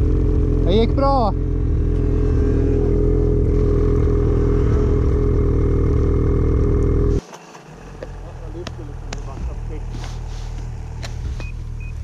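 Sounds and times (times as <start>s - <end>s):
snowmobile engine running steadily: 0.0s - 7.2s.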